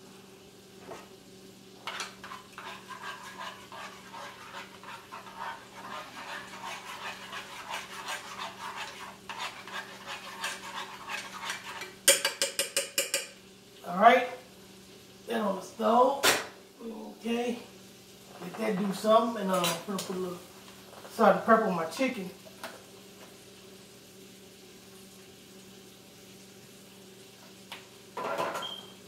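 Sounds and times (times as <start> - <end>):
utensil scraping metal saucepan: 1.8 - 13.3.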